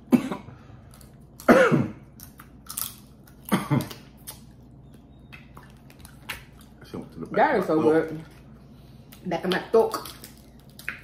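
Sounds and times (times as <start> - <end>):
person coughing: 0.0 - 0.6, 1.4 - 2.0, 3.5 - 3.9
soft chewing and mouth clicks: 2.2 - 9.3, 9.9 - 11.0.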